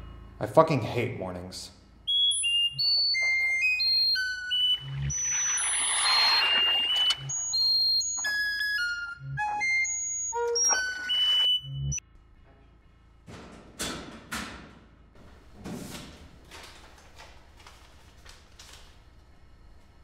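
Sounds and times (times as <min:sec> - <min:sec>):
synthesizer tune with beeping notes: 0:02.2 - 0:12.0.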